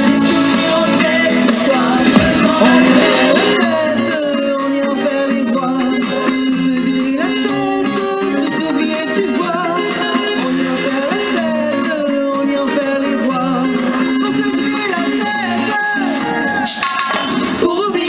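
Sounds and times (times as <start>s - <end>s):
women singing into microphones: 0.0s - 6.0s
electric guitar: 0.0s - 18.0s.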